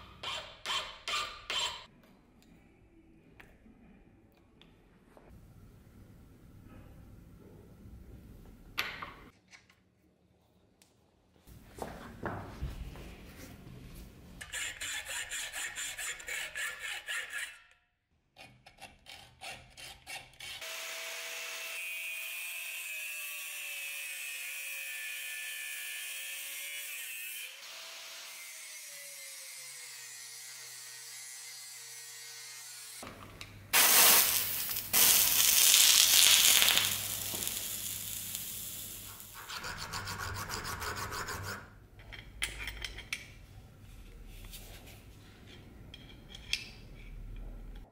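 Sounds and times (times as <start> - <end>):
hacksaw sawing steel rod: 0.0 - 1.9, 14.4 - 17.7, 18.4 - 20.7, 39.4 - 41.7
hand file rasping metal: 0.0 - 1.9, 14.4 - 17.7, 18.4 - 20.6, 39.4 - 41.7.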